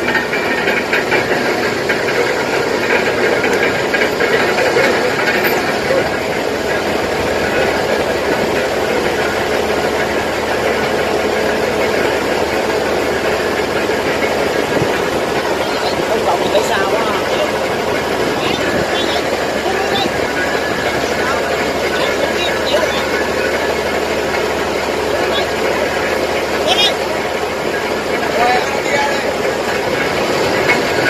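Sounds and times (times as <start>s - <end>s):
diesel engine running: 0.0s - 31.0s.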